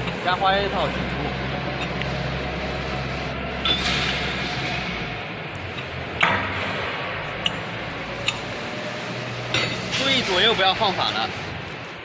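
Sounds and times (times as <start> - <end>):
steady low hum: 0.0 - 12.0
sharp metallic knocks: 5.8 - 8.5, 9.5 - 10.2.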